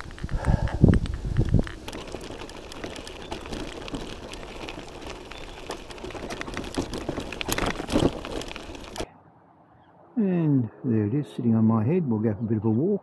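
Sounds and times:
bicycle bumps: 0:00.0 - 0:09.1
bicycle tyres crunching on gravel: 0:00.0 - 0:09.1
small clicks and rattles: 0:00.0 - 0:09.1.

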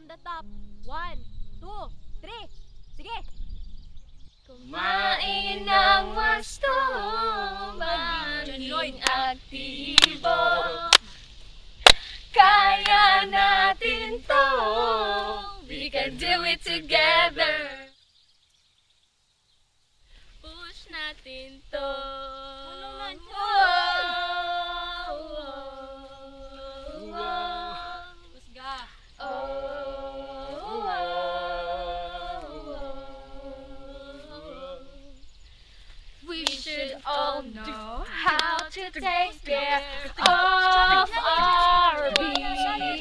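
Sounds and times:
group singing unaccompanied: 0:04.5 - 0:11.2, 0:12.2 - 0:18.0, 0:20.7 - 0:35.4, 0:36.2 - 0:43.0.

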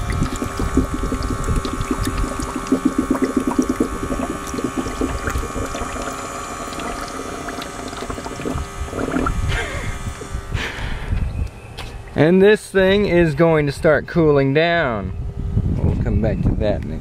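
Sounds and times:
water gurgling through hose: 0:00.0 - 0:10.6
small water pump running: 0:00.0 - 0:13.2.

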